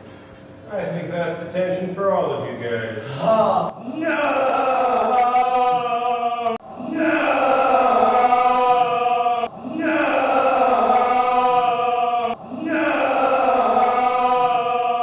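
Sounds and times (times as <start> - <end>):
choir singing held chords: 3.7 - 15.0.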